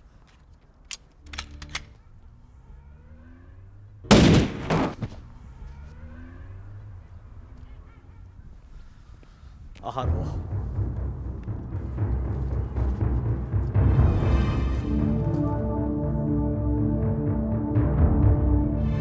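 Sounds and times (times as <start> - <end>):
gunshots: 4.1 - 5.2.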